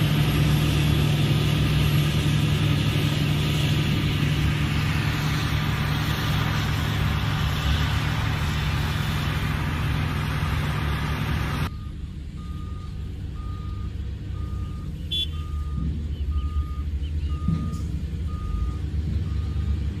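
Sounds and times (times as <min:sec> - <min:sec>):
diesel engine running: 0:00.0 - 0:20.0
reversing alarm beeping: 0:11.6 - 0:20.0.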